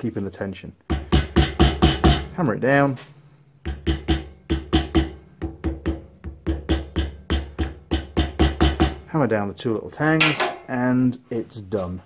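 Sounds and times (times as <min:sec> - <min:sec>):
small hammer tapping on metal: 0:03.6 - 0:09.0.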